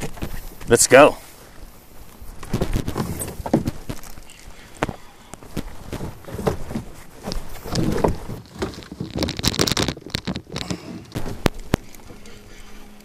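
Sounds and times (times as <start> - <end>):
fish thumping in a boat: 4.8 - 12.2.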